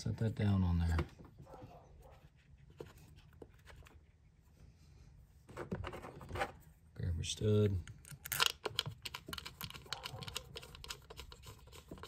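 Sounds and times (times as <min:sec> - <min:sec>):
small parts clicking and rustling: 0:07.8 - 0:12.0.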